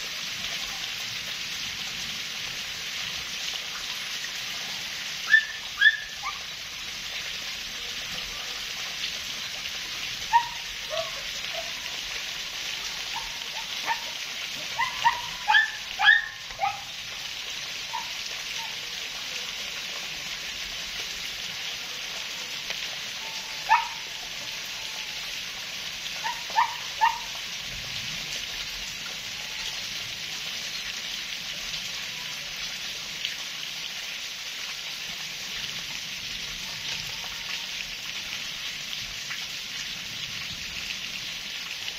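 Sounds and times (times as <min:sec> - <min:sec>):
steady rain falling: 0:00.0 - 0:41.9
dog yelping: 0:05.3 - 0:06.4, 0:10.3 - 0:11.8, 0:13.1 - 0:16.9, 0:23.7 - 0:24.0, 0:26.2 - 0:27.3.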